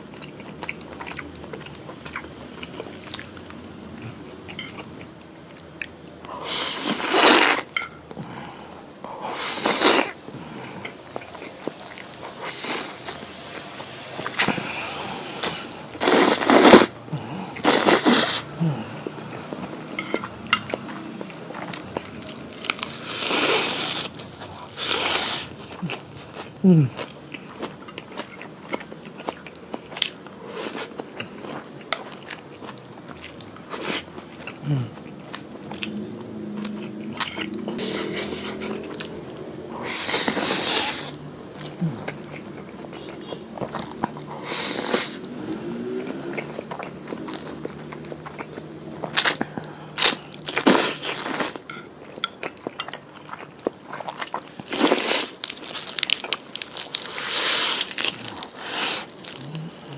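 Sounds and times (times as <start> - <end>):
loud slurps of noodles: 6.4 - 7.7, 9.3 - 10.2, 15.4 - 16.9, 17.6 - 18.5, 39.8 - 41.2, 44.4 - 45.9, 57.2 - 58.0
man chewing and lip smacking: 46.4 - 59.9
crunching bites of lettuce: 54.0 - 59.9.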